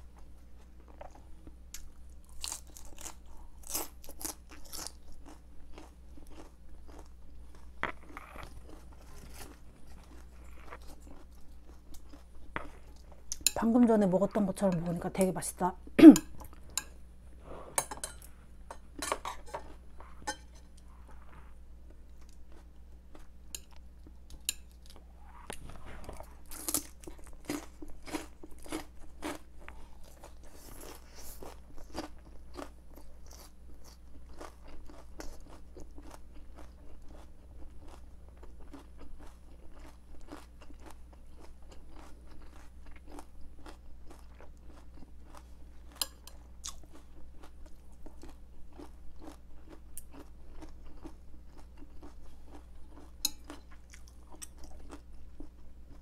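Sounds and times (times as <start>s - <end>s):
chewing crisp vegetables: 0.0s - 56.0s.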